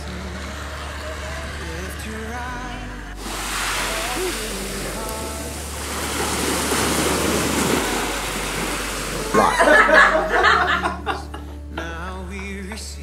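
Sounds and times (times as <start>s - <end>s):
waves on pebbly beach: 3.2s - 9.4s
choppy water splash: 3.2s - 10.2s.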